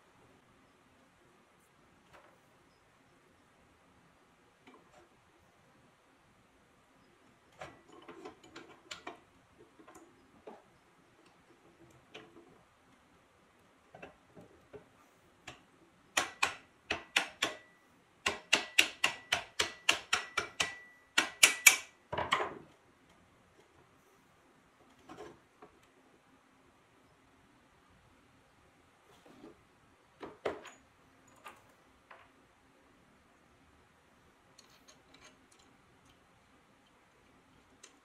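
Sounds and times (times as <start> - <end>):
high metallic ring: 20.6 - 21.7.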